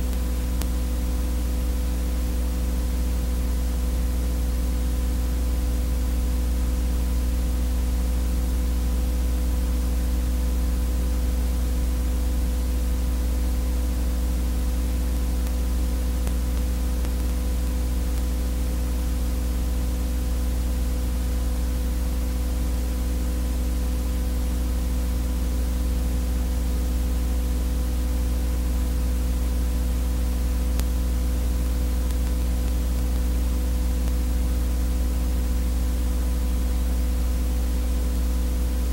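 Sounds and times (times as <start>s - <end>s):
tape hiss: 0.0s - 38.9s
electrical buzz: 14.0s - 20.6s, 28.4s - 38.9s.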